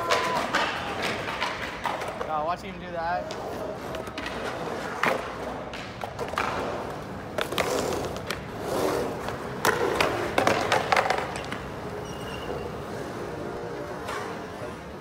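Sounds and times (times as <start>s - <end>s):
skateboard clacks and knocks: 0.0s - 2.3s, 3.2s - 12.2s
skateboard rolling on concrete: 0.0s - 15.0s.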